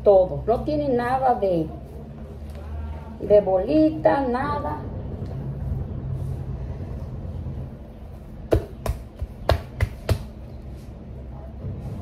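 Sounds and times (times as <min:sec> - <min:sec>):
sharp hand slaps: 0:08.5 - 0:10.4.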